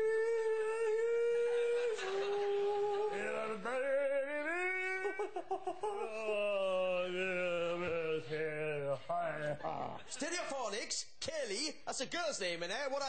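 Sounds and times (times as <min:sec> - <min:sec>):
person singing mock-operatic notes: 0:00.0 - 0:05.2.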